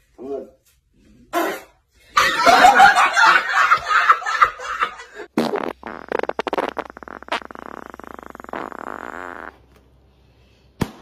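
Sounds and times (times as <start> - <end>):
loud laughing: 2.2 - 5.2
air sputtering from balloon neck: 5.3 - 9.7.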